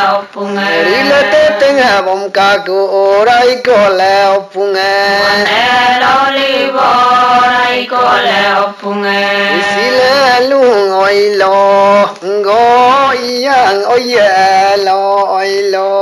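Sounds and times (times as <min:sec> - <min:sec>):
man chanting in long notes: 0:09.4 - 0:16.0.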